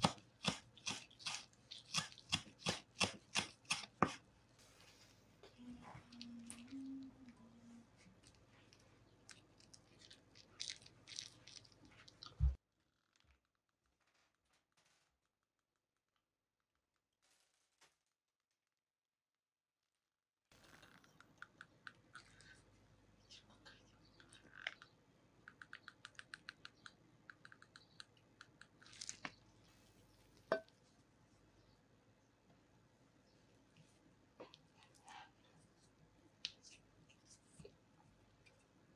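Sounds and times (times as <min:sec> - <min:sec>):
faint crackles and clicks: 0:08.0 - 0:18.2, 0:20.5 - 0:22.6.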